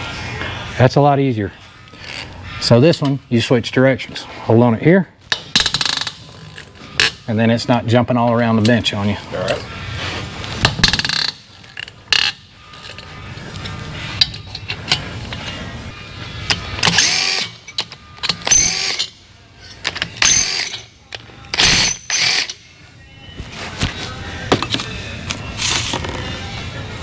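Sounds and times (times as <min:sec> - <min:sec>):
ratchet wrench loosening bolts: 0:10.7 - 0:13.1, 0:16.5 - 0:20.9, 0:21.5 - 0:22.6.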